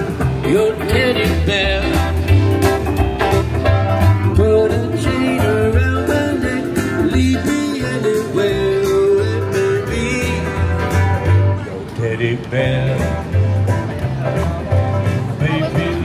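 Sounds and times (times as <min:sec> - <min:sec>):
pulsing bass: 0:00.0 - 0:11.7
plucked guitar: 0:00.0 - 0:16.0
person singing: 0:04.2 - 0:11.0, 0:15.3 - 0:16.0.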